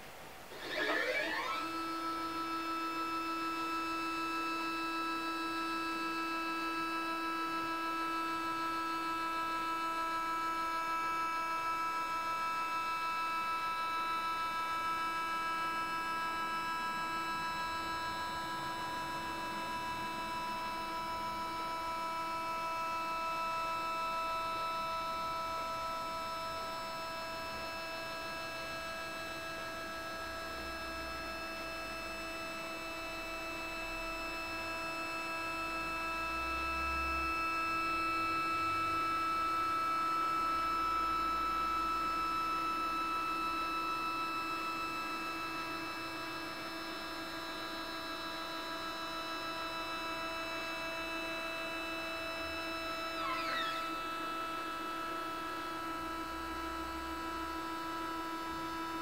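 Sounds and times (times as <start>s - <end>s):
stepper motors whining: 0.5s - 2.4s, 53.2s - 54.3s.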